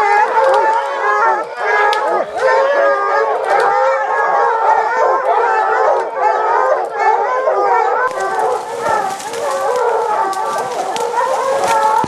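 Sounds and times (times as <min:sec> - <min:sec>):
leaves and twigs crackling: 0:00.0 - 0:01.2, 0:08.0 - 0:12.0
hounds baying and howling: 0:00.0 - 0:12.0.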